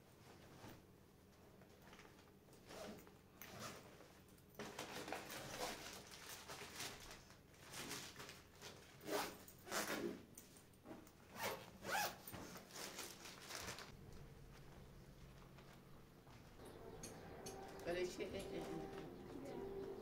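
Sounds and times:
backpack rustling and scraping: 2.6 - 7.0, 7.7 - 10.2, 10.8 - 15.9.

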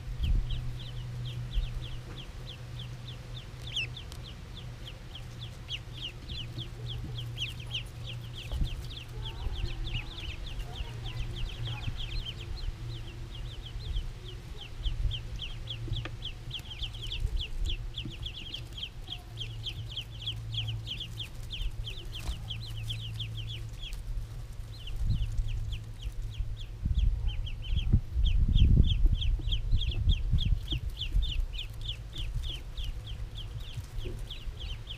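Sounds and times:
ducklings peeping: 0.0 - 34.9
low rumble: 0.0 - 34.9
steady low hum: 0.0 - 34.9.

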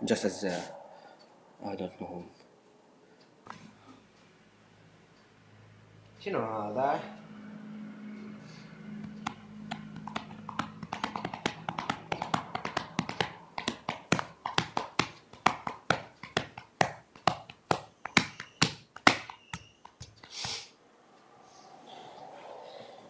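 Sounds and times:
sharp taps on hard surface: 9.0 - 20.6.

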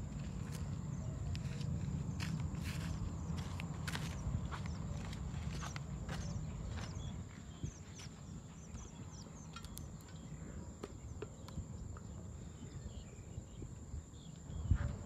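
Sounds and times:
footsteps on dirt: 0.0 - 9.0
crickets buzzing: 0.0 - 15.0.

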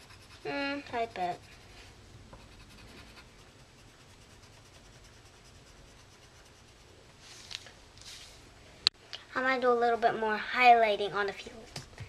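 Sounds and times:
pencil scratching on paper: 0.0 - 7.0.

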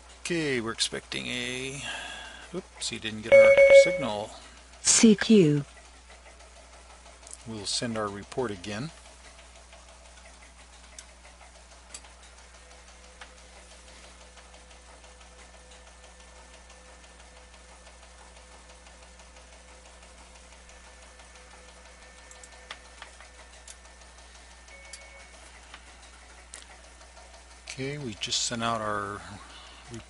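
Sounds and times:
low hum and hiss: 0.0 - 5.8
faint steady tone: 3.3 - 4.3.

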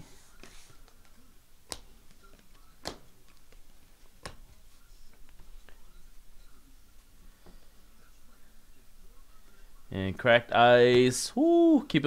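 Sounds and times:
trading cards clicking: 0.4 - 4.5.

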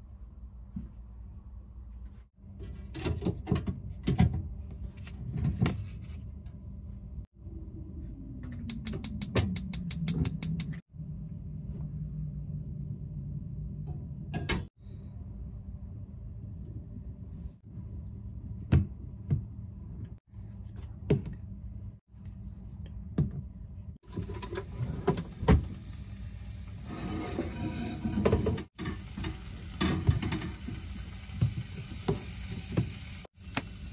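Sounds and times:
pan and utensils clunking: 27.0 - 30.8.

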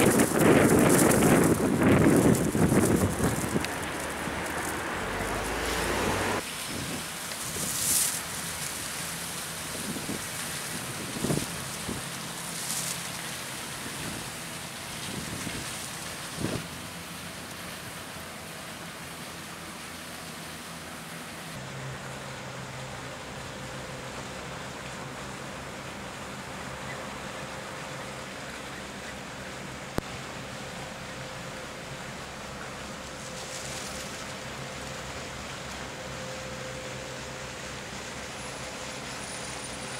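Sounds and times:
wind rumbling on microphone: 0.0 - 8.2, 9.7 - 13.0, 13.6 - 16.7
waterside ambient hiss: 0.0 - 39.9.

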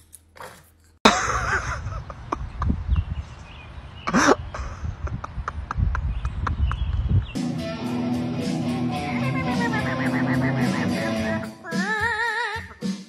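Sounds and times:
wind buffeting microphone: 1.4 - 7.4.

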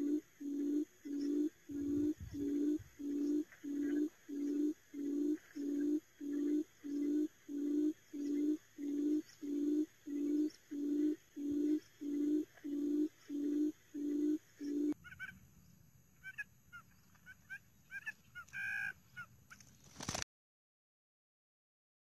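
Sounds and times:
high bird chirps: 0.0 - 15.3
quail hooting: 0.0 - 15.4, 16.2 - 19.3.

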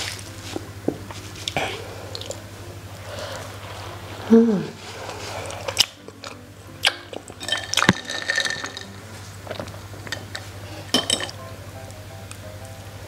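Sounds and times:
ice and straw clinking on glass: 7.4 - 9.0, 10.1 - 11.4.

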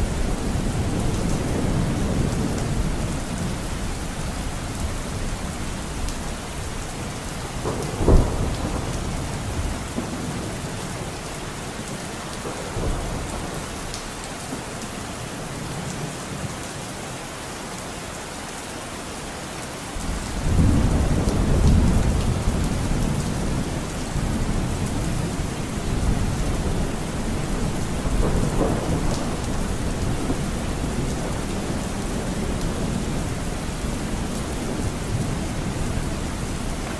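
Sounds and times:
steady rain: 0.0 - 36.9
low thunder rumble: 7.5 - 10.7, 20.0 - 36.8
loud thunderclap: 7.6 - 10.5, 20.0 - 35.4.

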